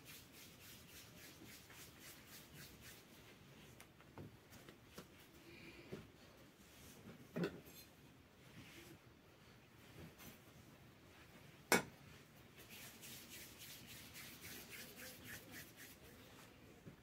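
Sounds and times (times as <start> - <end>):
hands rubbing dough: 0.0 - 3.8, 12.6 - 16.5.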